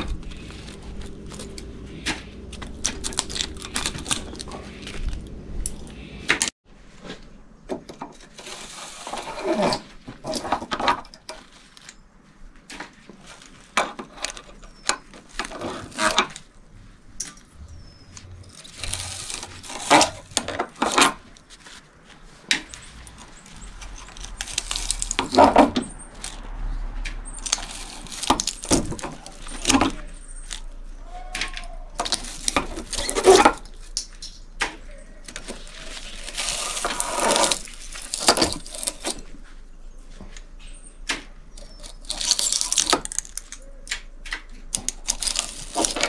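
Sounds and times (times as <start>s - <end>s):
metal clinks and knocks: 22.6s - 34.5s.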